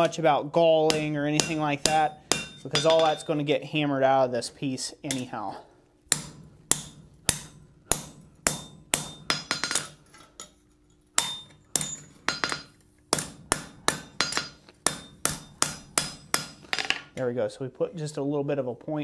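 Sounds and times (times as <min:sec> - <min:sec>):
hammer striking steel on anvil: 0:00.8 - 0:03.4, 0:06.1 - 0:10.6, 0:11.2 - 0:17.0.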